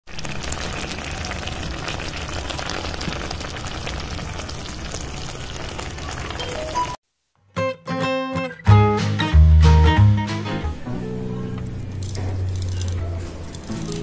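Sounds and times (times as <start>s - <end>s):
fish sizzling in a pan: 0.1s - 7.0s.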